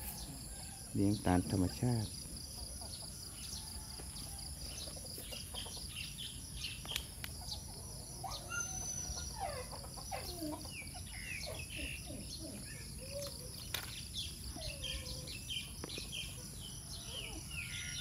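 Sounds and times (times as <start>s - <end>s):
bird chirps: 0.0s - 18.0s
insects droning: 0.0s - 18.0s.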